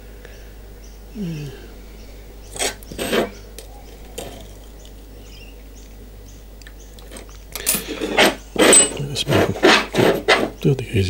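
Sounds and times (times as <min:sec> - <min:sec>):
steel plates clinking and scraping: 0:07.1 - 0:10.6.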